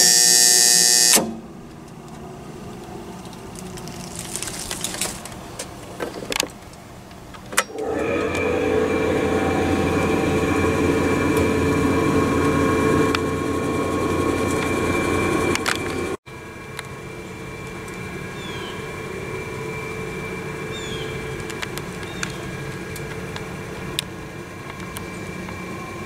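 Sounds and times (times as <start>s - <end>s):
warning siren steady tone: 0.0s - 1.2s, 7.7s - 26.0s.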